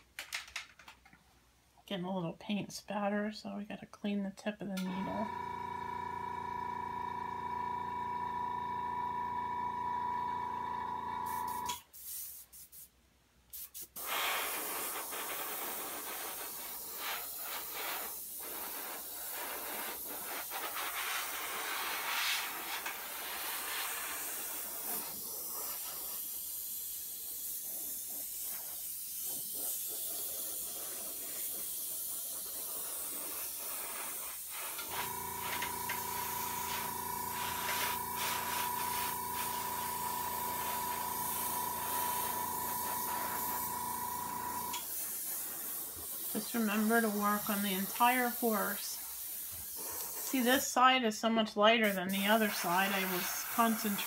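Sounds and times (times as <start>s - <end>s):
airbrush hissing: 11.2s - 12.9s, 13.5s - 50.7s, 51.8s - 54.0s.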